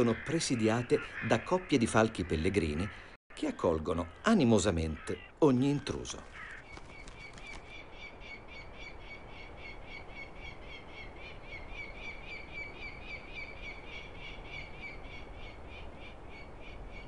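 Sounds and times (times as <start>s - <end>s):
falcon calling: 4.1s - 16.5s.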